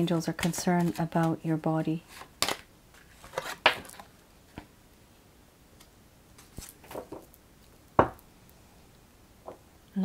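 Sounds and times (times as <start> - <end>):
cards rustling: 0.1 - 1.4, 2.1 - 4.1.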